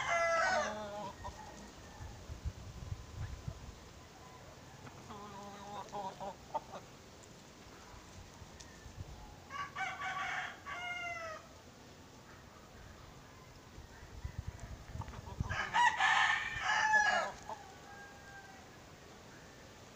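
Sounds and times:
rooster crowing: 0.0 - 2.3, 9.5 - 11.5, 14.0 - 19.0.

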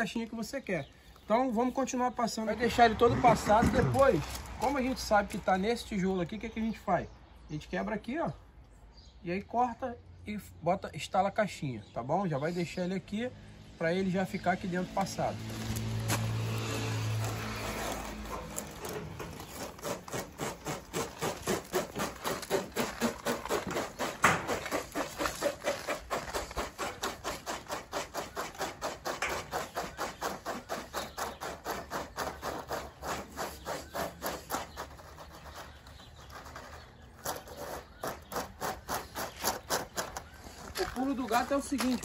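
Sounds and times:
plastic conduit rasping against brick: 2.6 - 5.8, 15.4 - 42.0.

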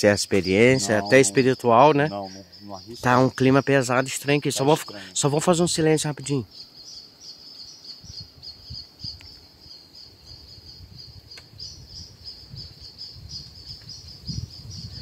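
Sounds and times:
insects chirping in chorus: 0.0 - 15.0.

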